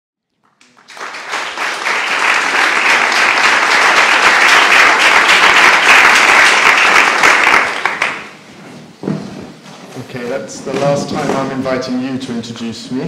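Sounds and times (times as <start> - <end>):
audience applauding: 0.3 - 8.4.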